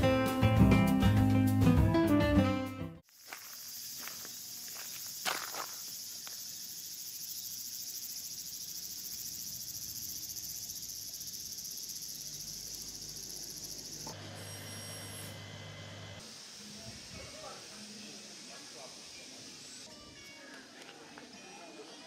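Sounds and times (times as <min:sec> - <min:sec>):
insects buzzing: 0:03.0 - 0:19.9.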